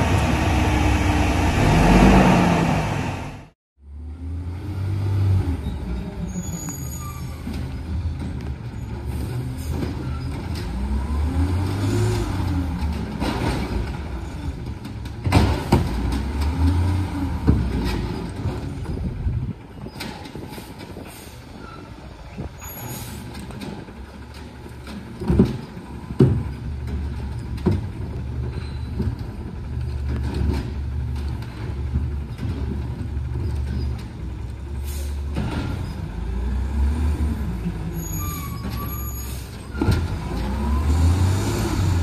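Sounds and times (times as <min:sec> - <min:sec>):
garbage truck engine revving: 0:00.0 - 0:03.6, 0:39.8 - 0:42.0.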